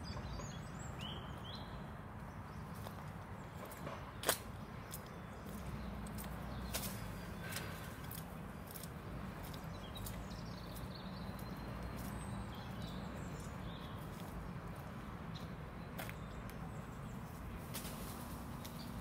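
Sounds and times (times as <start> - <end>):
footsteps on muddy road: 2.7 - 16.7.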